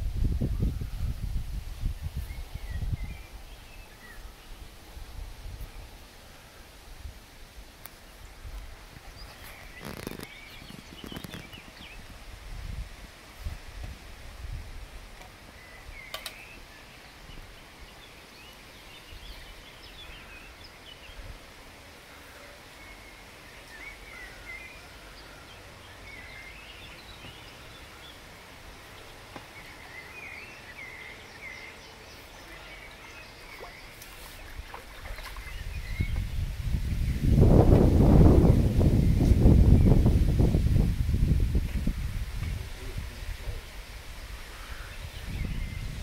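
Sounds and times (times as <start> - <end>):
small birds chirping: 7.8 - 12.1, 22.0 - 37.4.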